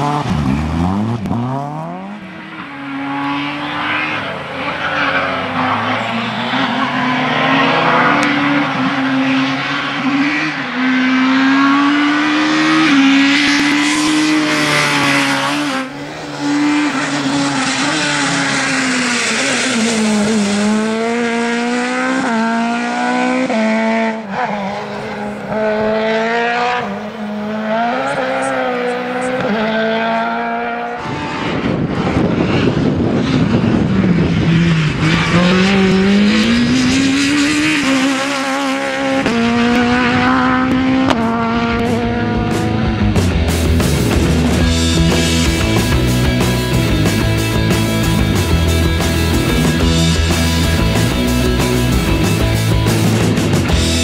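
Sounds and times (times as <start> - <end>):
rally car engine revving: 0.0 - 54.0
rough rushing noise: 3.7 - 23.8, 31.0 - 54.0.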